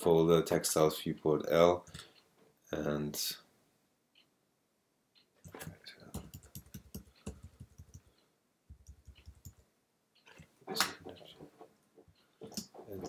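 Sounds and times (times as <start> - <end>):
keyboard keys clicking: 5.4 - 8.1, 8.7 - 9.6.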